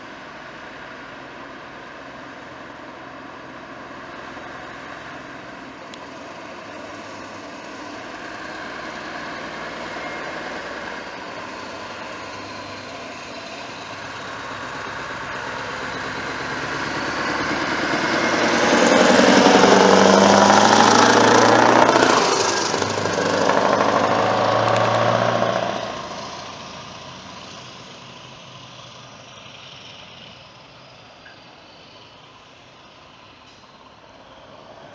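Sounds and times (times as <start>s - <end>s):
truck driving past: 0.0s - 34.9s.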